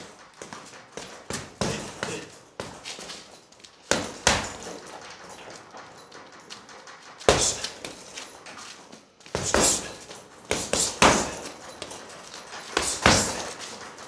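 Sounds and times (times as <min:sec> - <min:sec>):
punches thudding on heavy bag: 0:01.3 - 0:02.8, 0:03.9 - 0:04.7, 0:09.3 - 0:11.6, 0:12.7 - 0:13.6.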